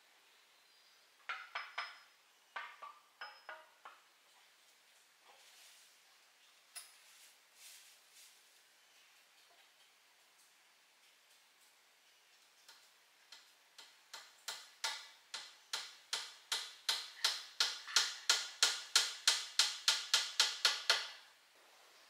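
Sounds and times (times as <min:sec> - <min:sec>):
sharp regular clicks: 0:12.6 - 0:21.2.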